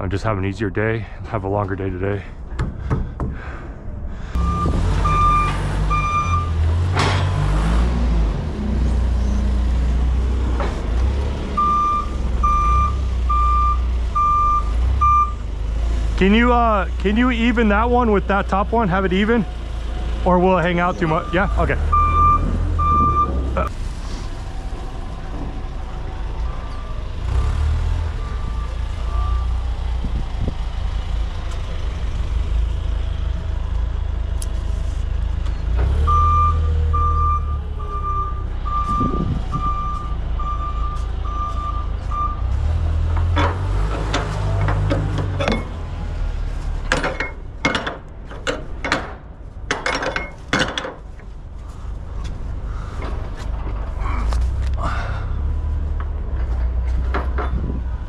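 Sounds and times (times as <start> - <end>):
forklift engine drone: 3.4 - 49.6
reversing alarm beeping: 4.4 - 6.6, 11.6 - 15.5, 20.9 - 23.7, 26.7 - 29.6, 36.0 - 42.5.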